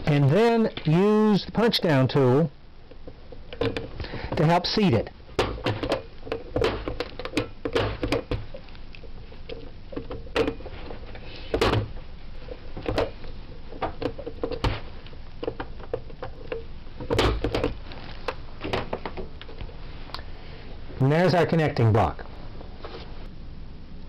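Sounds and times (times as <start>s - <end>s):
plastic clicks and knocks: 5.4s - 8.5s, 15.4s - 17.8s.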